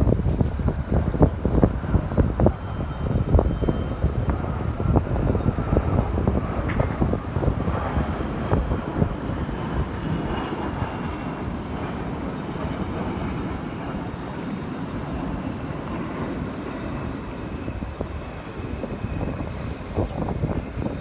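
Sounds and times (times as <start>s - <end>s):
high whine dropping in pitch: 0.0s - 12.4s
jet engine roar: 0.0s - 21.0s
wind buffeting microphone: 0.0s - 21.0s.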